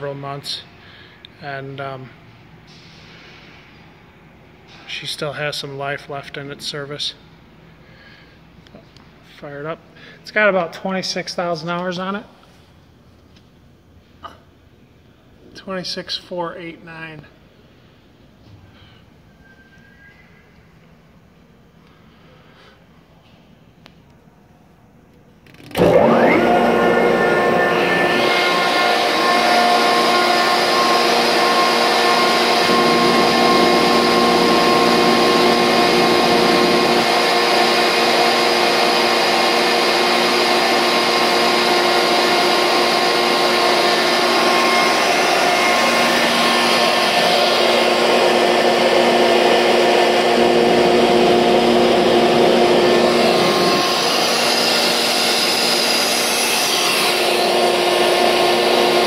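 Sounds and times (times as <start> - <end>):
air compressor running: 25.4 - 59.0
steady whining tones: 25.5 - 59.0.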